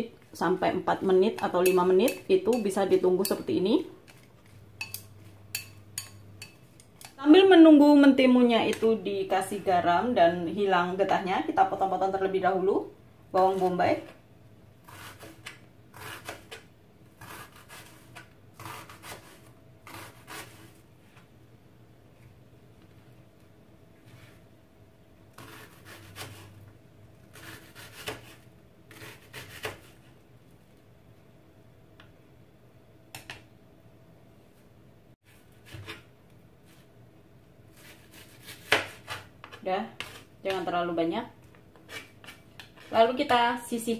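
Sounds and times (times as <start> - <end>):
knife slicing onion on plastic board: 14.8 - 20.8, 25.3 - 26.6, 27.2 - 30.1, 35.5 - 36.1, 37.7 - 40.7, 41.7 - 43.5.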